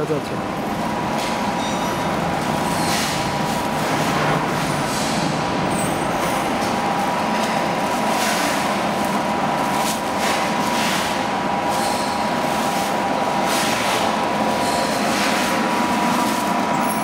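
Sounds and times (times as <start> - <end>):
machine humming and whining: 0.0 - 17.0.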